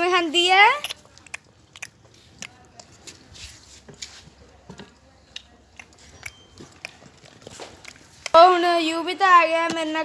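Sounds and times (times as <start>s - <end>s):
horse chewing fodder: 5.6s - 8.6s.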